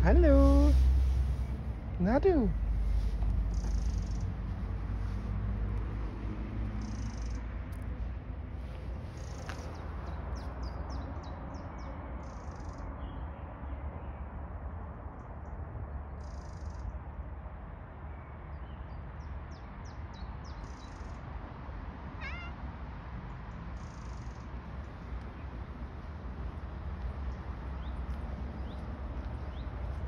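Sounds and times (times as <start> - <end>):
steady low rumble: 0.0 - 6.6
cat meowing: 22.2 - 22.6.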